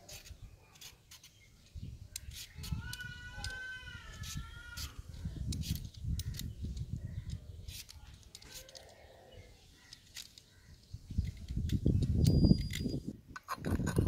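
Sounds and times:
peeler scraping mango skin: 0:00.0 - 0:01.4, 0:02.1 - 0:06.6.

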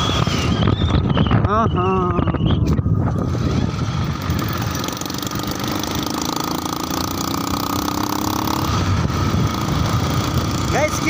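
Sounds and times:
wind and road noise: 0:00.0 - 0:11.0
motorcycle engine running: 0:02.8 - 0:11.0.

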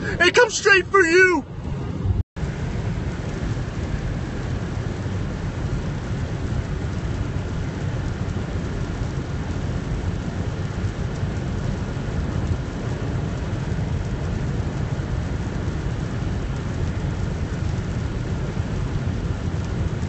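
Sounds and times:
heavy rain on a car: 0:00.0 - 0:20.0
wind: 0:00.0 - 0:20.0
deep rumble: 0:01.4 - 0:20.0.

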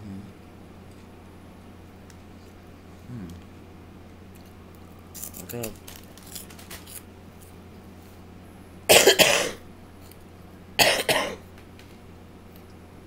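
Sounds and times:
person coughing: 0:08.9 - 0:09.6, 0:10.8 - 0:11.4.

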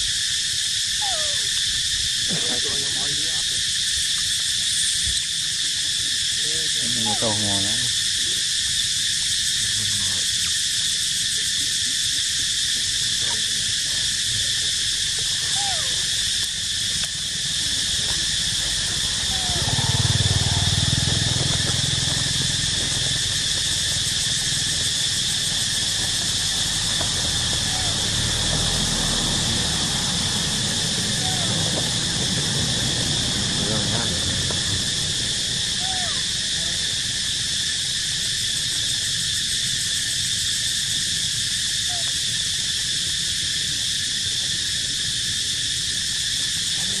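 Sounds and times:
high-pitched insect chorus: 0:00.0 - 0:47.0
faint short calls: 0:17.8 - 0:20.7.

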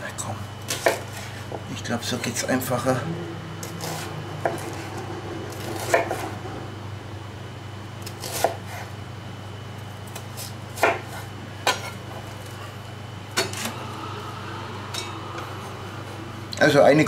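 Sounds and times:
knife chopping on wooden board: 0:10.1 - 0:11.9.

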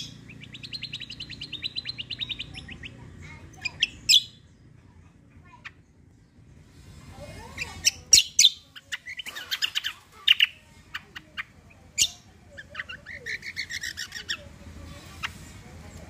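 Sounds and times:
bird chirping and whistling: 0:00.0 - 0:02.9
bird trilling: 0:00.0 - 0:04.5, 0:07.4 - 0:14.5.

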